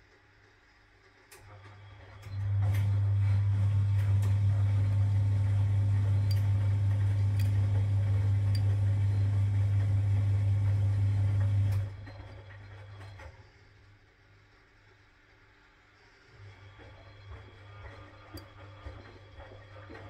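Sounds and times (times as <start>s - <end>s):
washing machine motor humming: 1.5s - 13.4s, 16.4s - 20.0s.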